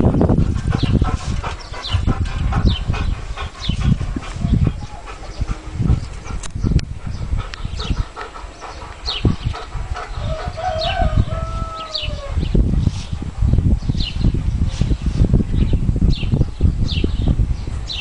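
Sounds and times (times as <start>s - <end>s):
gusty low rumbling: 0.0s - 18.0s
rooster crowing: 10.2s - 12.4s.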